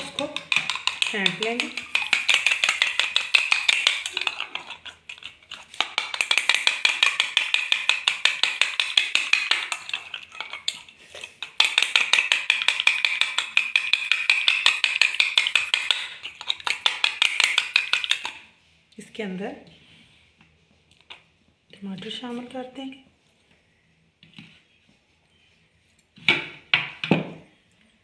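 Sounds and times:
metal spoon beating eggs in bowl: 0.0s - 18.5s.

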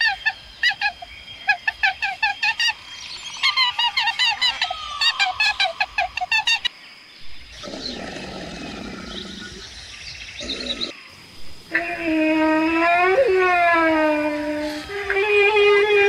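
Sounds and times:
low rough growl: 7.6s - 9.7s.

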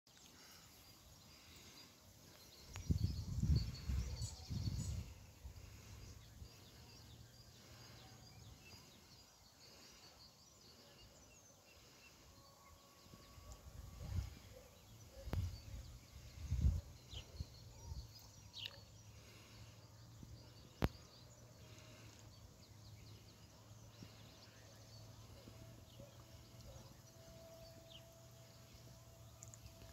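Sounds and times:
faint bird chirps: 0.1s - 29.9s
wind rumbling on microphone: 2.7s - 5.9s.

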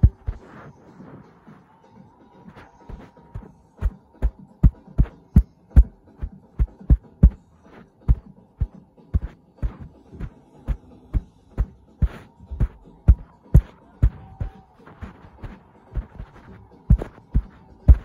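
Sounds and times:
muffled bass drum beat: 0.0s - 0.4s, 4.2s - 7.4s, 8.1s - 10.0s, 12.0s - 18.0s.

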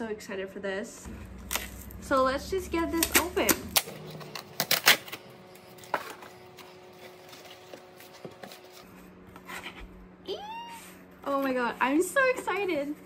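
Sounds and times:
cardboard rustling and scraping: 4.1s - 9.9s.

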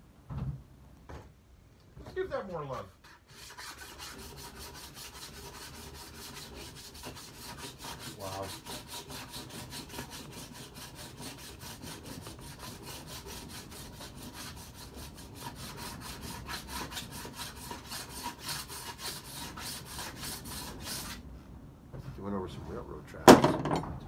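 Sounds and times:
hand file strokes on metal: 2.7s - 21.2s.

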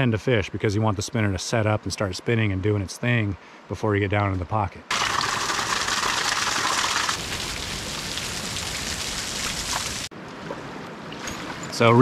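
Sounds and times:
small waterfall splashing: 4.9s - 10.1s.

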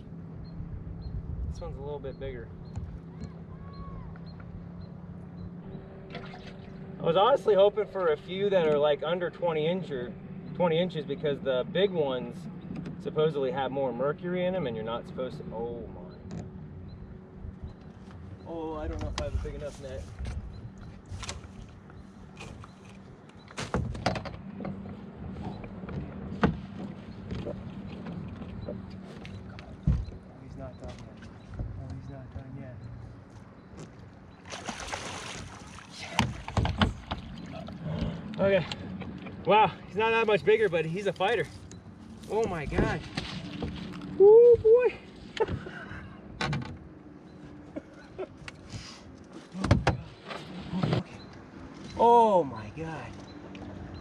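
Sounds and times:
knocks and clicks on boat deck: 16.2s - 16.6s, 18.8s - 19.4s, 20.2s - 34.2s, 36.0s - 39.4s, 45.4s - 47.4s, 49.5s - 51.9s.

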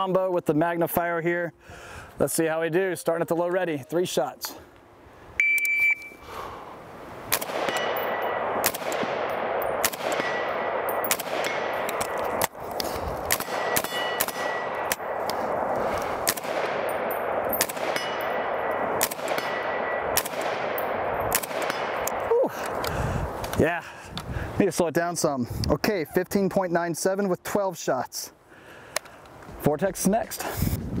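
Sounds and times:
rifle shots with echo: 7.3s - 22.3s
steel target ringing: 7.5s - 11.9s, 13.4s - 15.2s, 16.5s - 22.1s.

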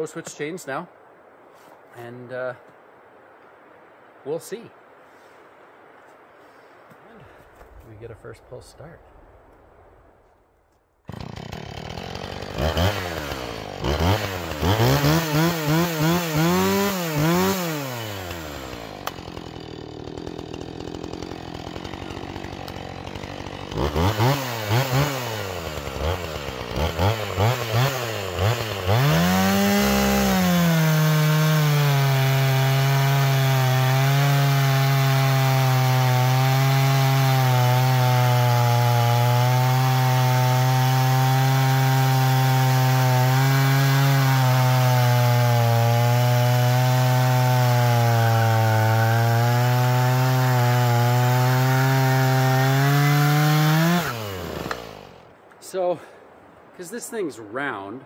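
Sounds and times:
chainsaw revving: 11.1s - 55.2s
chainsaw cutting log: 11.1s - 55.3s.

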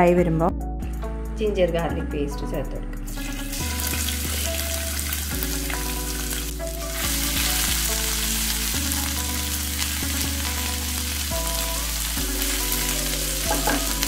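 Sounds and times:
paste sizzling in oil: 3.1s - 14.0s.

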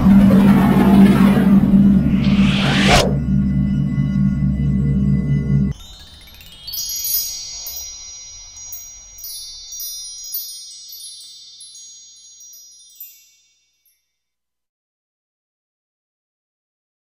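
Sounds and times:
tinkling bell-like chimes: 4.6s - 14.7s.

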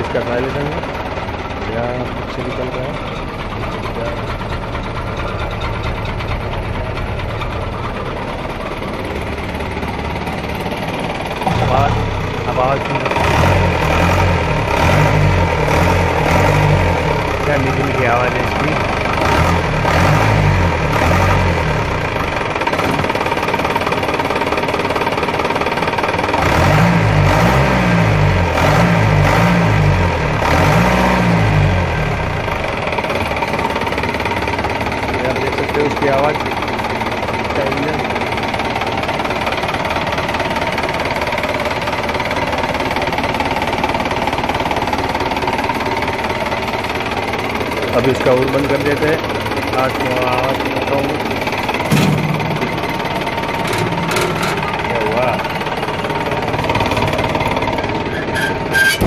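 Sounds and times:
diesel engine idling: 0.0s - 59.0s.

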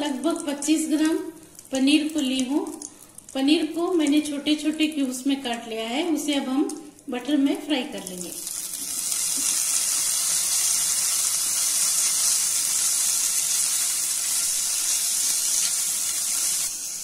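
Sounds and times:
cheese sizzling in butter: 8.0s - 17.0s.

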